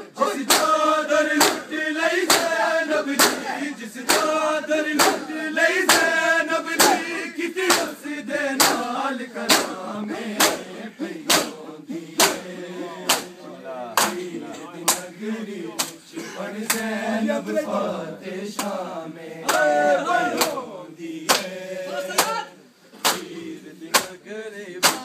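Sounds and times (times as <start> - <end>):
men chanting in unison: 0.0 - 25.0
hands slapping chests: 0.4 - 0.8, 1.4 - 3.5, 5.0 - 5.3, 6.8 - 7.0, 7.7 - 7.9, 8.6 - 8.9, 9.5 - 9.8, 10.4 - 10.6, 11.3 - 11.6, 12.2 - 12.4, 23.0 - 23.3.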